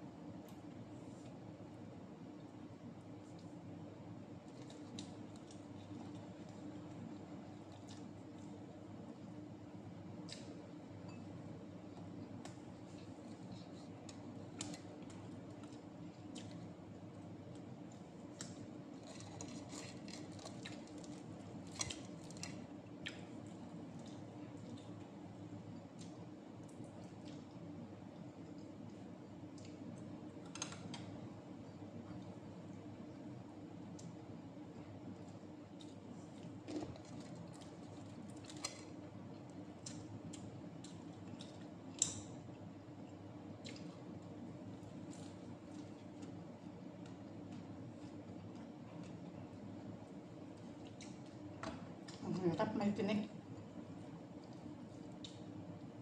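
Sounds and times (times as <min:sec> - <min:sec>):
faint steady hum: 0:00.0 - 0:56.0
small clicks and crackles: 0:04.4 - 0:07.0, 0:17.5 - 0:25.0.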